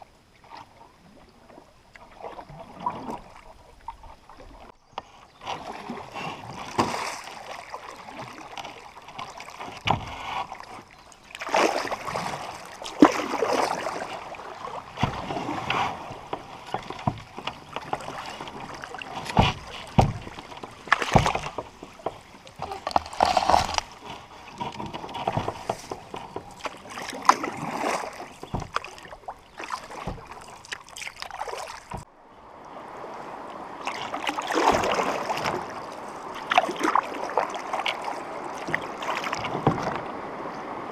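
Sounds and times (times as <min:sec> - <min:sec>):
paddle splashing water: 0:00.0 - 0:40.9
canoe rustling through reeds: 0:00.4 - 0:32.1.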